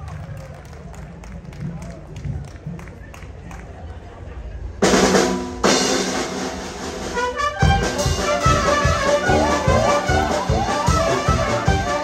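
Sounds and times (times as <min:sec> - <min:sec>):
brass band dance music: 0:04.8 - 0:12.0
steady drum beat: 0:04.8 - 0:12.0.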